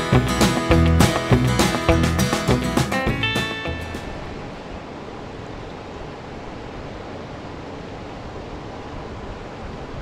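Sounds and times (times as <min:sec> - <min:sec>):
wind rumble on microphone: 0:04.0 - 0:10.0.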